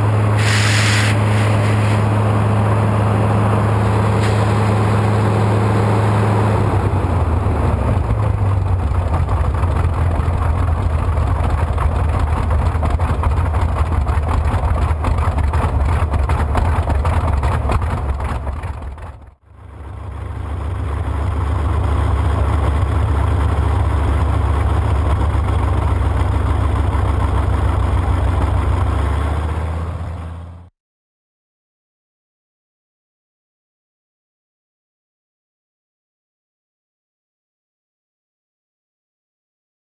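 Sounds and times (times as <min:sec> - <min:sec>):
radial aircraft engine running: 0:00.0 - 0:30.7.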